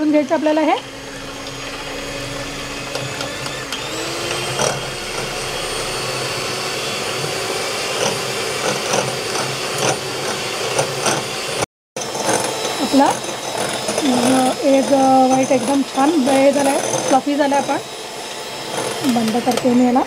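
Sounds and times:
electric hand mixer whirring: 0.0 - 20.0
beaters clicking on glass bowl: 12.0 - 17.8.

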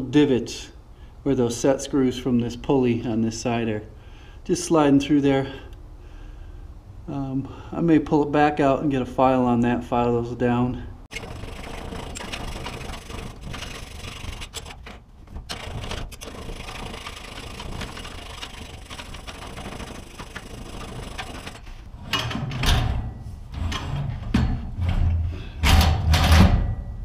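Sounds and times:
metal scraping and rubbing: 11.1 - 26.4.

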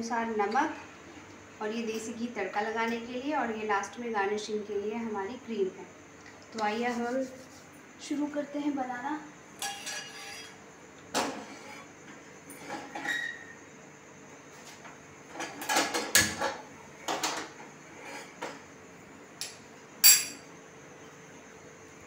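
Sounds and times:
small bowls clinking on plate: 9.6 - 10.6.

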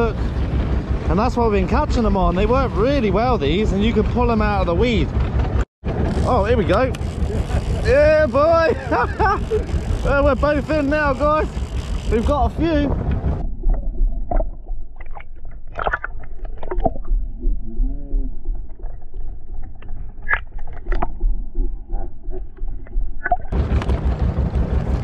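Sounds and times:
wavering hum: 0.0 - 25.0
wind and water: 0.0 - 25.0
muffled underwater wash: 11.3 - 25.0
underwater clicks and knocks: 12.9 - 24.0.

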